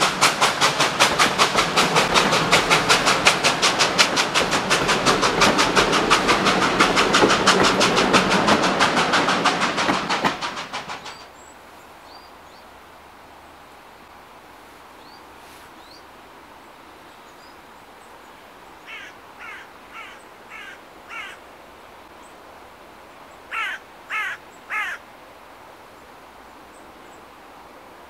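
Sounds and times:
crow cawing: 0:18.9 - 0:21.4, 0:23.5 - 0:25.0.

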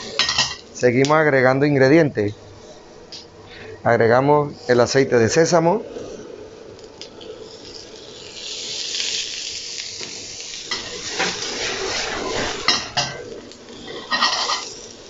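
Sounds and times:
vegetables sizzling in a wok: 0:00.0 - 0:00.8, 0:06.0 - 0:15.0
wok clattering on burner: 0:13.9 - 0:14.7.

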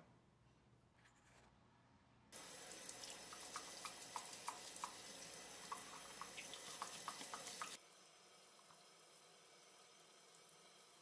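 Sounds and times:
water splashing and dripping: 0:02.4 - 0:07.8
tap water running: 0:02.4 - 0:11.0.

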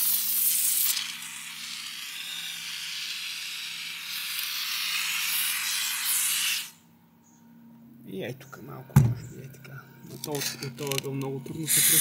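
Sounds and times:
foam hissing from spray gun: 0:00.0 - 0:06.8, 0:11.6 - 0:12.0.

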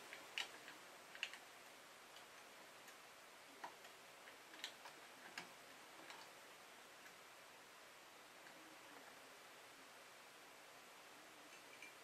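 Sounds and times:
small clicks of handling wires: 0:00.0 - 0:01.5.

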